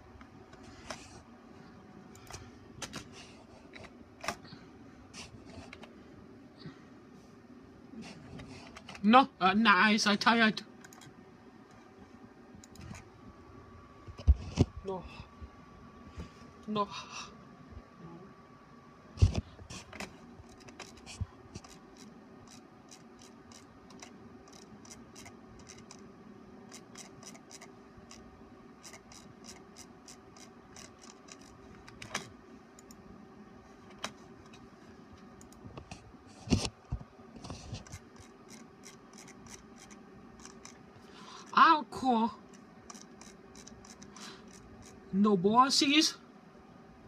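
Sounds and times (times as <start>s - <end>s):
printer mechanical hum: 18.4s - 45.2s.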